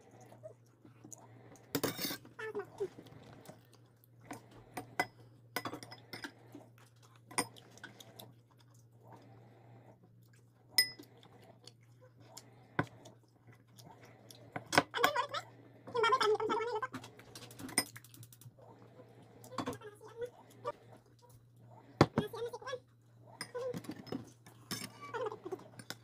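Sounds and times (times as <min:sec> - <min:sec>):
spoons clinking against bowls: 0:10.8 - 0:11.0.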